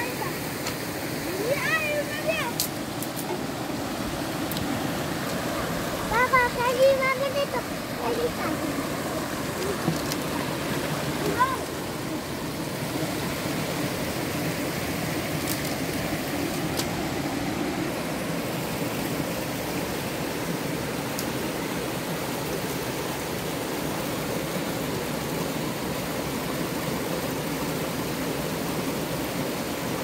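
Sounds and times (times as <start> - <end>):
steady rushing noise: 0.0 - 21.3.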